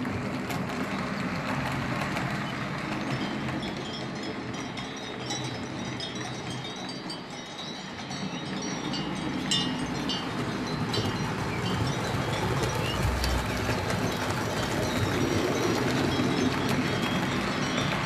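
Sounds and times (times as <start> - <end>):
steady rush of noise: 3.7 - 18.0.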